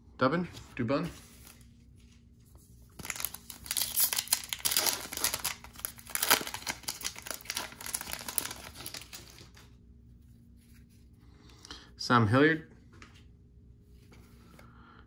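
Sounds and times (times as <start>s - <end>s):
foil wrapper tearing and crinkling: 3.0s - 9.7s.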